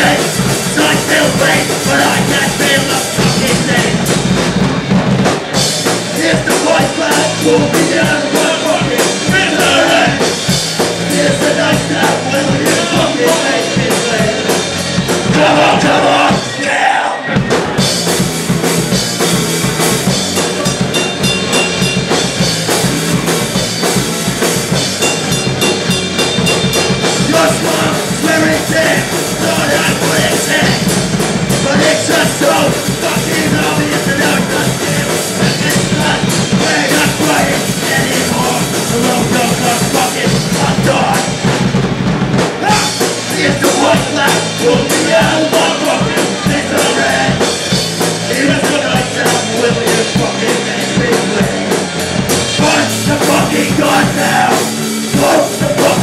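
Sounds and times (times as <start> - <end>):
person singing: 0.0 - 4.1, 6.1 - 10.3, 27.2 - 30.9, 31.6 - 41.4, 42.6 - 47.6, 48.2 - 51.8, 52.6 - 56.0
punk rock band playing live: 0.0 - 56.0.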